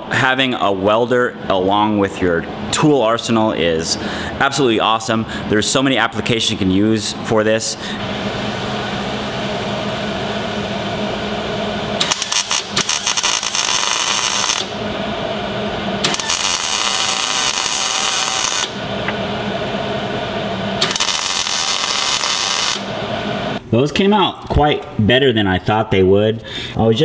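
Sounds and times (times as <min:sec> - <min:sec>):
steady hum: 0:00.0 - 0:27.0
welder arc crackling: 0:10.6 - 0:15.0, 0:15.6 - 0:19.6, 0:20.2 - 0:23.6.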